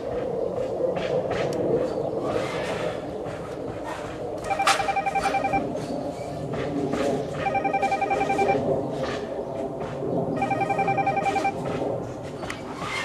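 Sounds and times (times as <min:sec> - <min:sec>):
telephone trilling ring: 0:04.5 - 0:05.6, 0:07.4 - 0:08.6, 0:10.4 - 0:11.6.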